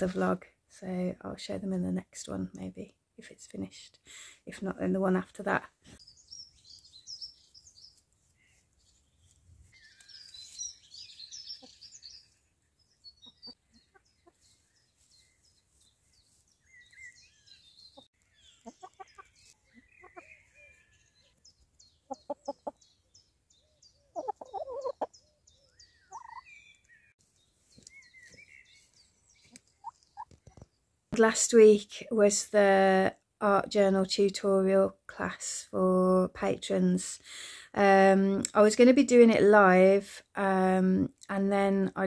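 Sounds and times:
small birds chirping: 2.3 - 31.8
hens clucking: 18.0 - 20.3, 22.0 - 22.8, 24.1 - 25.1.

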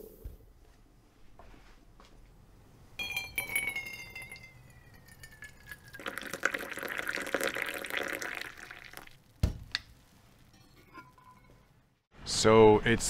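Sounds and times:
coffee pouring into metal mug: 3.4 - 9.2.

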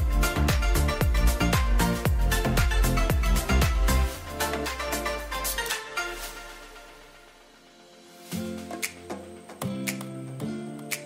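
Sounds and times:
electronic music with kick drum: 0.0 - 11.0.

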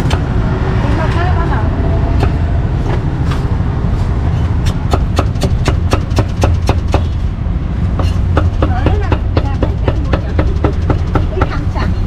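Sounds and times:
steady low rumble: 0.0 - 12.0
cleaver chopping on wooden block: 4.6 - 7.1.

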